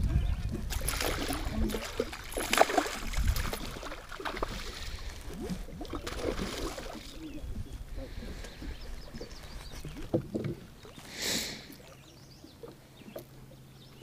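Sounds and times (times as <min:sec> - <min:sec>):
fish splashing at the surface: 0:00.7 - 0:07.2.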